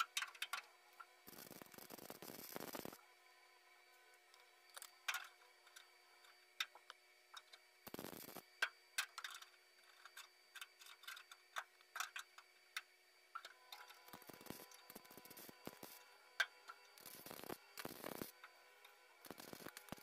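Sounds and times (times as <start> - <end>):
welder crackling: 1.2 - 3.0, 6.6 - 9.3, 10.9 - 18.5, 19.2 - 20.0.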